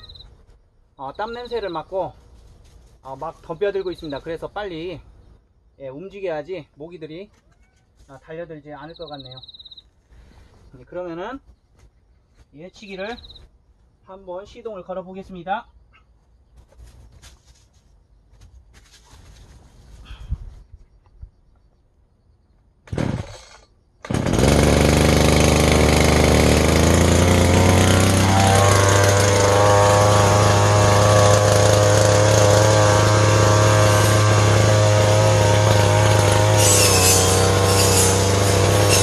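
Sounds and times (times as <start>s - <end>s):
brush cutter engine running: 22.9s - 39.0s.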